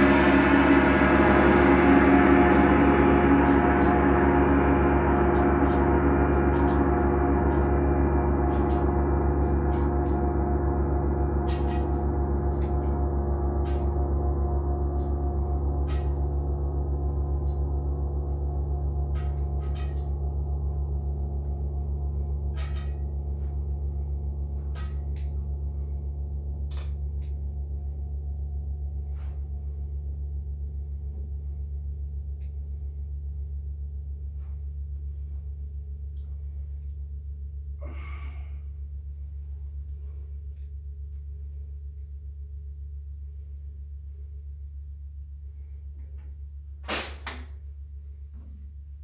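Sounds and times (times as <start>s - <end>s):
gong ringing: 0.0s - 32.8s.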